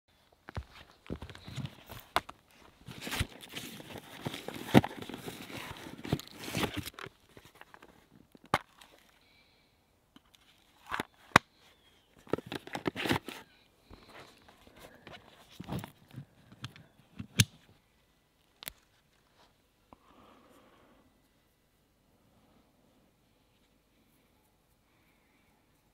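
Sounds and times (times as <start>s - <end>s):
rustling of gear: 0.4s - 9.2s.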